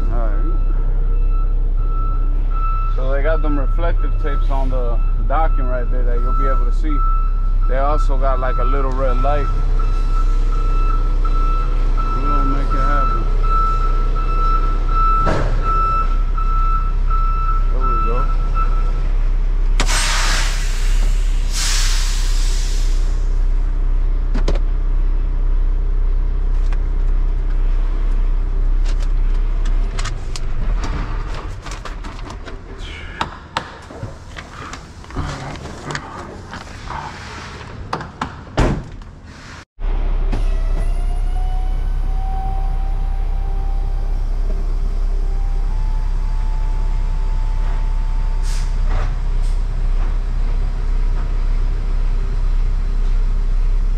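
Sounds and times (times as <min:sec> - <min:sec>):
diesel engine idling: 0:00.0 - 0:30.8
burst of hiss: 0:19.8 - 0:23.1.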